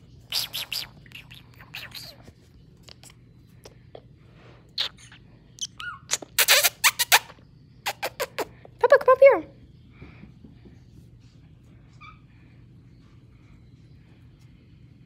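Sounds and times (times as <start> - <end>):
parrot squeaking: 0.3 - 2.3, 4.8 - 8.5, 12.0 - 12.2.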